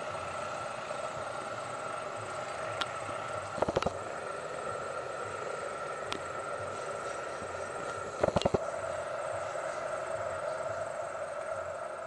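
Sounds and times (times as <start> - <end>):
steady train drone: 0.0 - 12.0.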